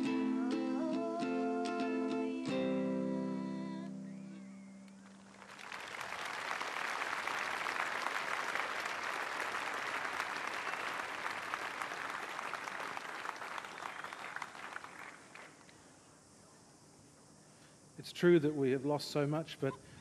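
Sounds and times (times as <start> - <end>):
large crowd applauding: 5.0 - 15.7.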